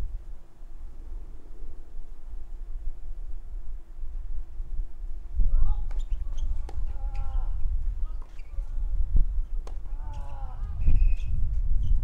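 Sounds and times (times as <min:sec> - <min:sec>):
racquets striking tennis ball: 0:05.9 - 0:07.3, 0:09.6 - 0:10.0.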